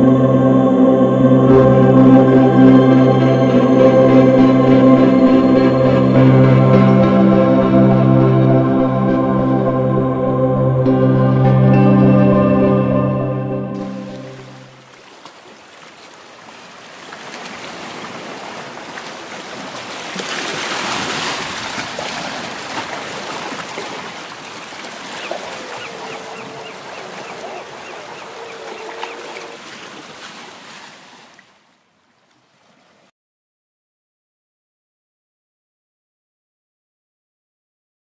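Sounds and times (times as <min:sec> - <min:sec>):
small waves washing on beach: 0:13.8 - 0:33.1.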